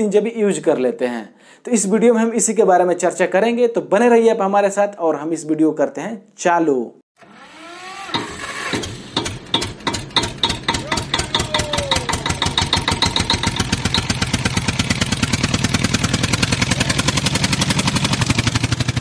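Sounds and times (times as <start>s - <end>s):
mechanical ticks speeding up: 8.8s - 18.4s.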